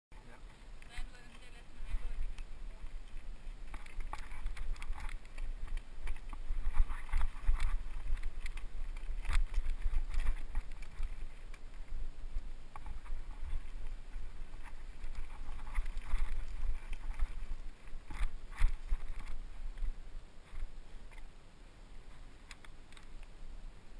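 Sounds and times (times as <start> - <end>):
wind rumble on microphone: 0.3 - 23.9
bike rolling on rocky trail: 0.5 - 21.3
bike rattling over bumps: 1.8 - 20.6.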